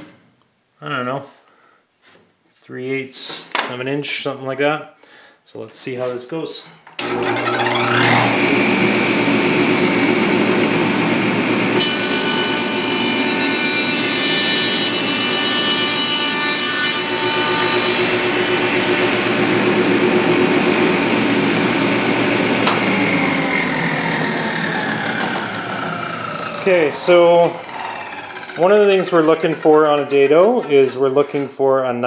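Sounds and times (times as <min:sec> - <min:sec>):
saw blade winding down: 0:07.0 - 0:30.9
table saw running: 0:07.0 - 0:30.9
saw cutting wood: 0:07.0 - 0:31.1.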